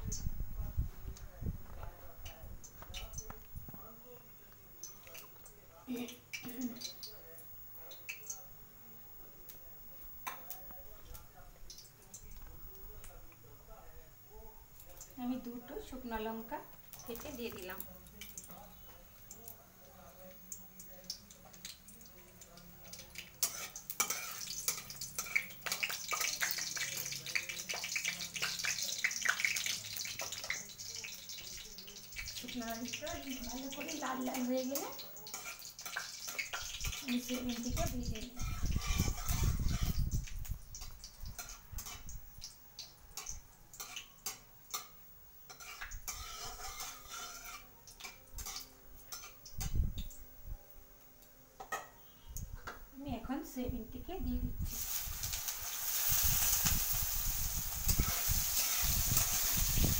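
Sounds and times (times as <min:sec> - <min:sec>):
chillies sizzling in hot oil: 0:00.0 - 0:59.9
metal spatula scraping pan: 0:23.4 - 0:26.4, 0:37.1 - 0:40.0, 0:45.5 - 0:47.7.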